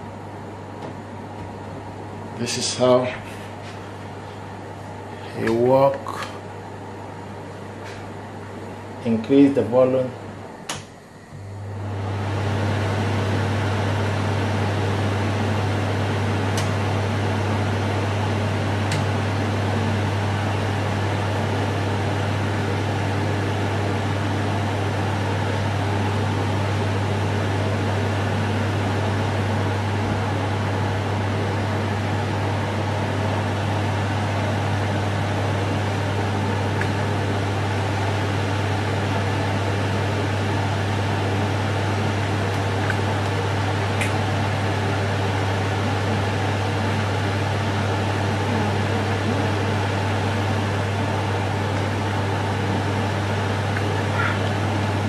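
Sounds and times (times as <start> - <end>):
extractor fan running: 0.0 - 55.0.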